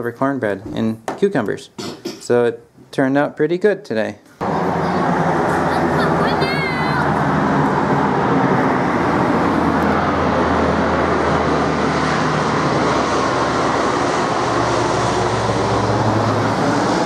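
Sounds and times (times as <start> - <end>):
propeller plane drone overhead: 4.4 - 17.0.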